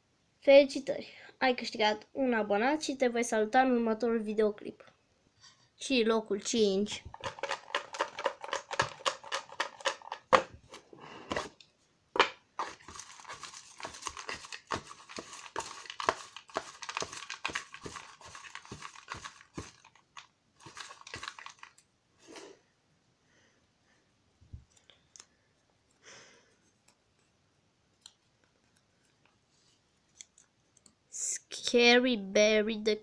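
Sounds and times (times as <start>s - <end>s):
paper slips rustling: 12.6s - 21.8s.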